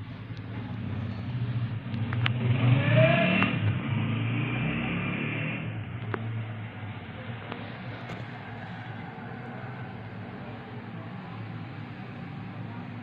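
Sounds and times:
vehicle engine humming: 0.0 - 13.0.

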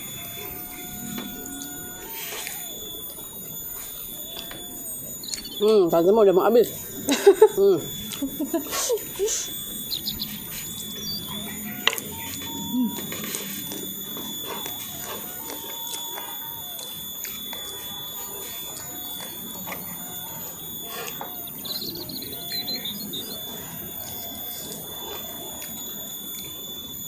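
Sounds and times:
steady high-pitched whine: 0.0 - 27.0
close chewing: 7.3 - 26.8.

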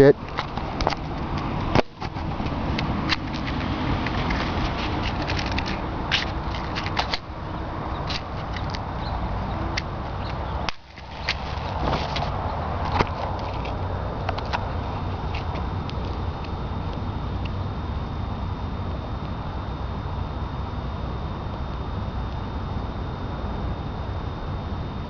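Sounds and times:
matchbox rustling and clicking: 3.1 - 7.3.

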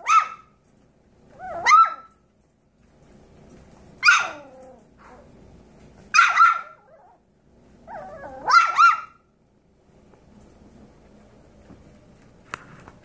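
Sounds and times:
puppy yapping: 0.0 - 0.6, 1.3 - 2.2, 4.0 - 5.3, 6.1 - 7.2, 7.8 - 9.2.

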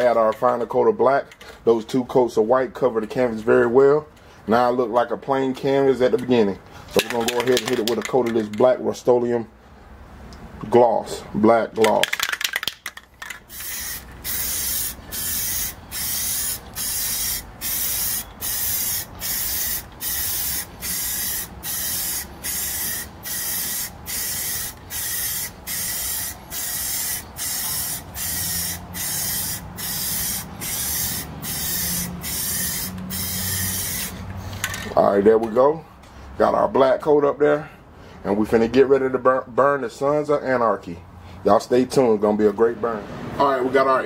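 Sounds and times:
spray paint can hissing: 13.5 - 34.2.

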